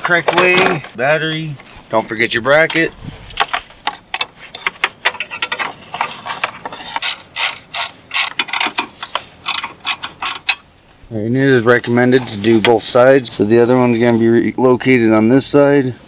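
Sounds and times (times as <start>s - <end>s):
socket ratchet clicking: 7.0s - 8.8s.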